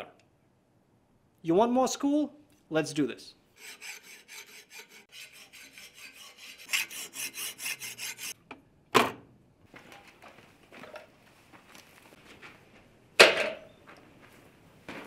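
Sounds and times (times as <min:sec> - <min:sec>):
chalkboard eraser rubbing: 0:03.6 - 0:08.4.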